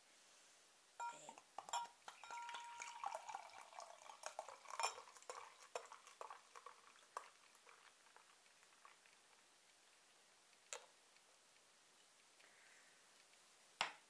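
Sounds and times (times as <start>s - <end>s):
glass clinking on glass: 1.0s - 6.0s
beer pouring into a glass: 1.0s - 9.4s.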